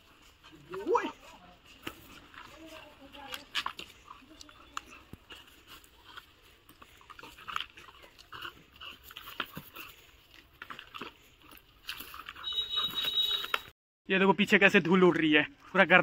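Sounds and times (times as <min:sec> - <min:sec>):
puppy growling: 0:04.0 - 0:10.0.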